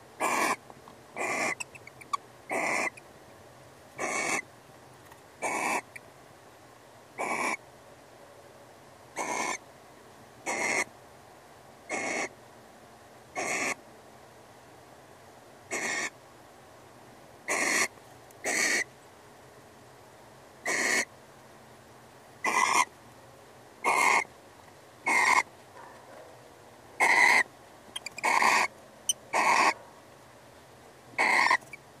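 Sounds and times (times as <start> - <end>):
barn owl hissing calls: 0.2 - 0.6, 1.2 - 3.1, 4.0 - 4.5, 5.4 - 6.0, 7.2 - 7.6, 9.2 - 9.6, 10.4 - 10.9, 11.9 - 12.3, 13.4 - 13.8, 15.7 - 16.2, 17.5 - 18.9, 20.6 - 21.1, 22.4 - 22.9, 23.8 - 24.3, 25.0 - 25.5, 27.0 - 29.8, 31.2 - 31.8.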